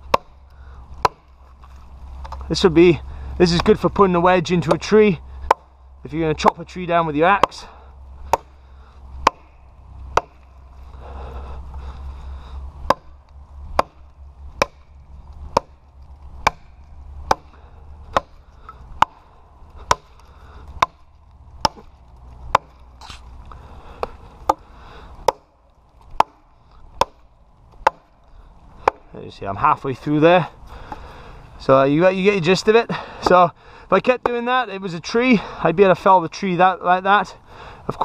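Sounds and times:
axe chopping log: 0.0 - 1.5, 5.4 - 5.7, 6.3 - 8.6, 9.2 - 10.6, 12.8 - 15.8, 16.4 - 23.2, 24.0 - 28.2, 28.8 - 29.1, 33.2 - 33.4.

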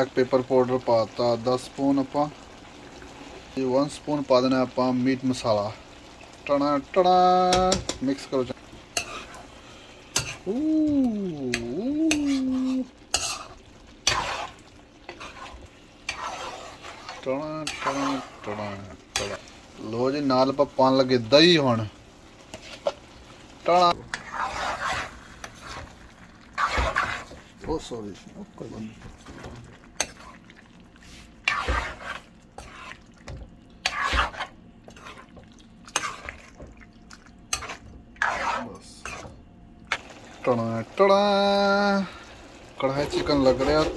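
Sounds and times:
chicken sizzling in a pan: 0.0 - 36.6, 39.9 - 43.9
ladle scraping thick gravy: 9.0 - 10.4, 12.3 - 19.6, 24.1 - 27.4, 30.0 - 33.2, 33.8 - 36.6, 37.5 - 39.3, 42.0 - 43.9
person humming: 10.4 - 12.9.

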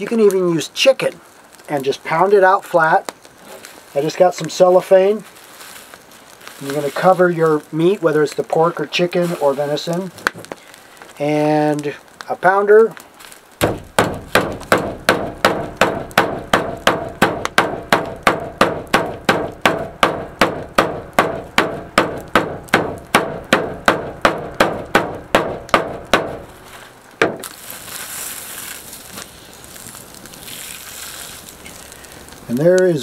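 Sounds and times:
plastic wrap rustling: 0.0 - 17.2, 26.4 - 33.0
metal meat pounder striking meat: 13.6 - 26.4, 27.2 - 27.5.

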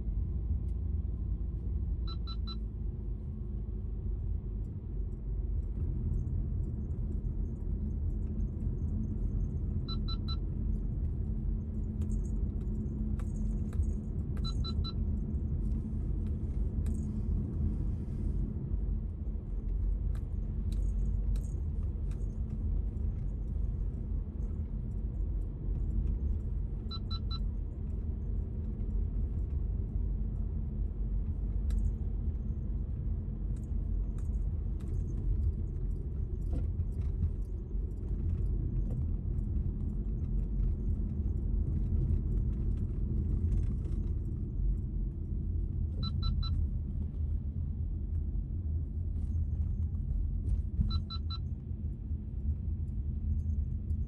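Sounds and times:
tyres and engine rumble: 0.0 - 54.0
faint high beeps: 2.1 - 2.6, 9.8 - 10.4, 14.4 - 15.0, 26.9 - 27.4, 46.0 - 46.6, 50.8 - 51.4.

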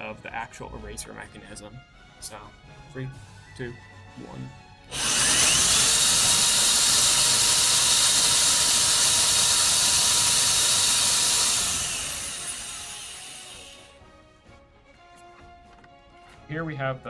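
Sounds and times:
electric drill running: 4.9 - 14.0.

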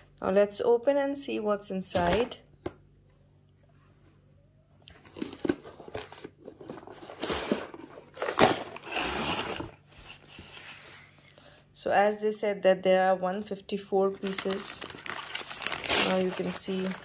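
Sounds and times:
cardboard rubbing and crinkling: 5.6 - 11.0, 14.2 - 16.9
cardboard lid scraping off: 6.6 - 11.0.

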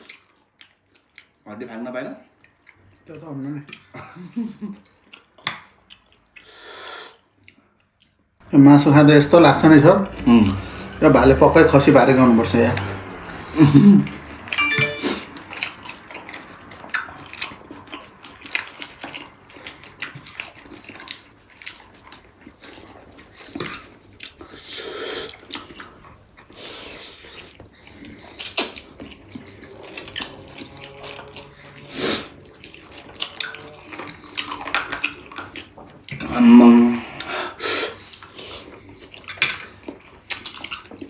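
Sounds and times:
wet chewing and lip smacking: 0.0 - 1.4, 2.3 - 3.9, 4.7 - 6.6, 7.2 - 8.4, 15.4 - 36.3, 37.9 - 41.0.

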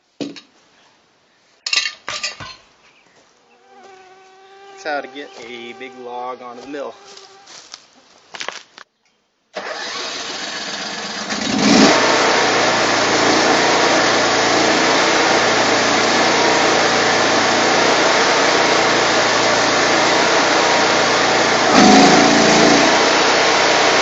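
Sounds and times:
sawmill engine running: 4.8 - 7.6, 9.6 - 24.0.

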